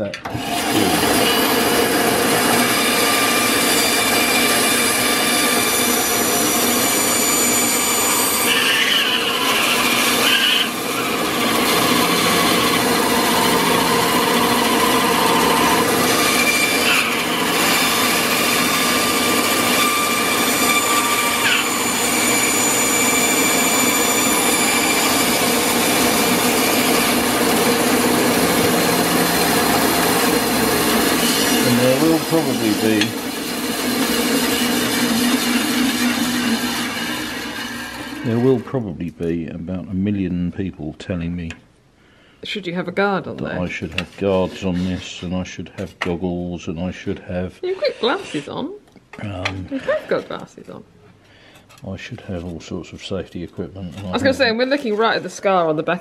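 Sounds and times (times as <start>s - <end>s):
bandsaw cutting wood: 0.3s - 38.8s, 54.0s - 55.6s.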